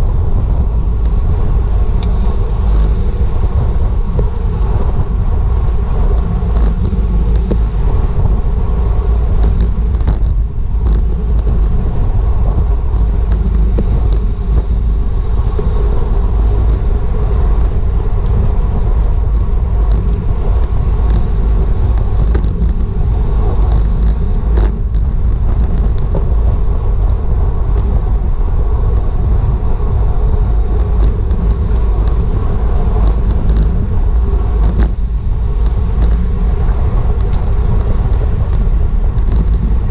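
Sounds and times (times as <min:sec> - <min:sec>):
wind rushing over microphone: 0:00.0 - 0:39.9
light clicks and ticks: 0:05.4 - 0:28.3, 0:28.9 - 0:35.0, 0:35.6 - 0:39.9.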